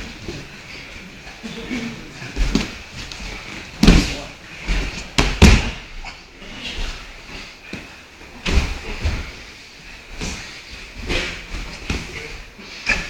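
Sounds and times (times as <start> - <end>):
bodies thudding on foam mats: 2.3 - 5.9, 7.7 - 12.4.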